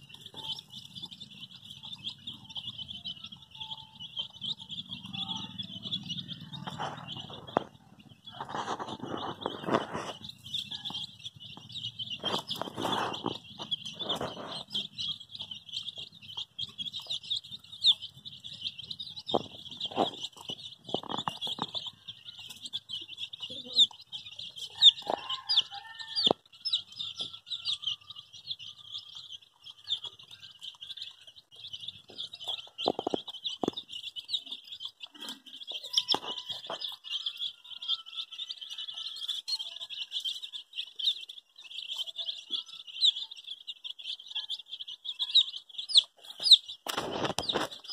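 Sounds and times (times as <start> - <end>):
baby chicks peeping: 0.0 - 47.9.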